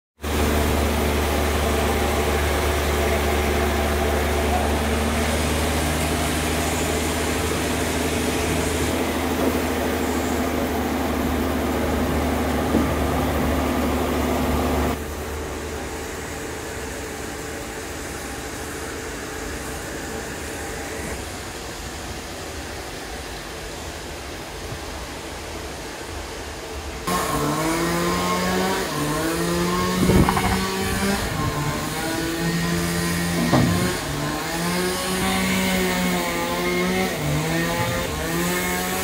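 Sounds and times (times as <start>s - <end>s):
machinery humming: 0.2s - 39.0s.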